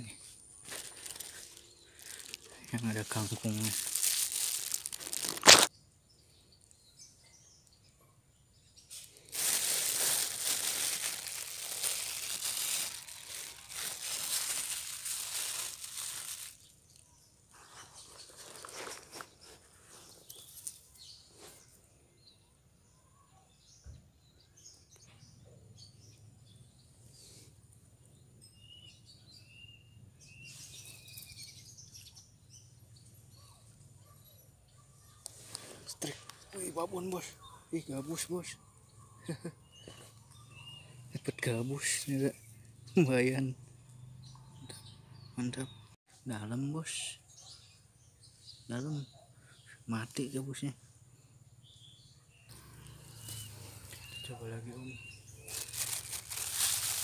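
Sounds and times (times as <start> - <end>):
rustling: 0.4 - 5.7, 8.9 - 21.6, 55.4 - 57.0
short bird chirps: 51.7 - 55.7.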